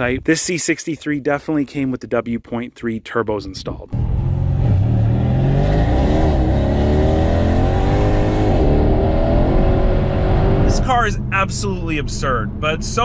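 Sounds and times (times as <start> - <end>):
car engine accelerating hard: 4.0 - 13.0.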